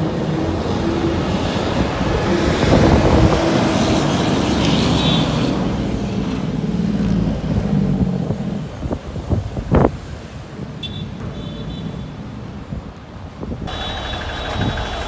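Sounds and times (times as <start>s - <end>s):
truck diesel engine under load: 0.0s - 9.3s, 13.6s - 15.0s.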